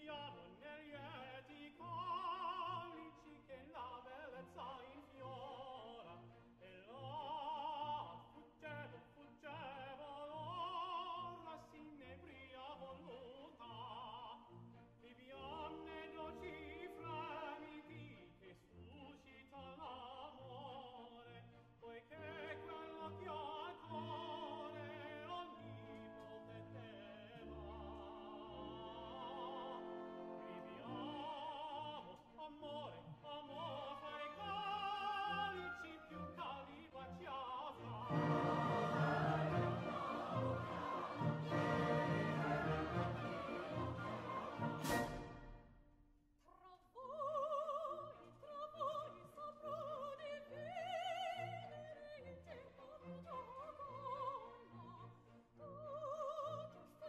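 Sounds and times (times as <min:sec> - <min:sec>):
operatic singing voice: 0:00.0 - 0:45.6, 0:46.5 - 0:57.0
orchestral accompaniment: 0:15.4 - 0:18.2, 0:22.1 - 0:32.0, 0:37.8 - 0:45.8.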